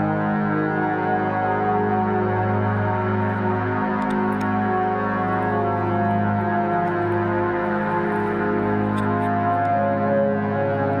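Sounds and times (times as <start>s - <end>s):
ambient synthesizer chords: 0.0s - 11.0s.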